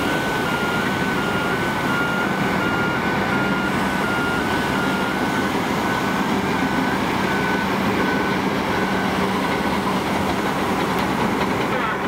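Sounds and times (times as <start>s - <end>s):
backup alarms beeping: 0.0s - 10.6s
diesel engines under load: 0.0s - 12.0s.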